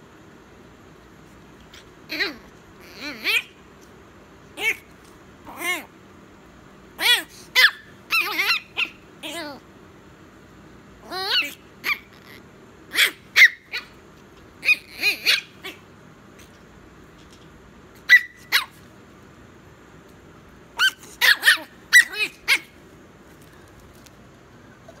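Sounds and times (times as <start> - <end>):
puppy yapping: 1.7 - 3.6, 4.6 - 4.9, 5.5 - 5.9, 7.0 - 9.6, 11.0 - 14.0, 14.6 - 15.8, 18.0 - 18.8, 20.8 - 22.8.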